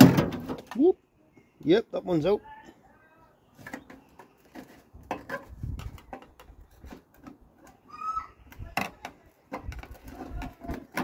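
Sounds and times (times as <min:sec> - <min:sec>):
clicks knocks and scraping: 0:03.5 - 0:07.8, 0:08.5 - 0:11.0.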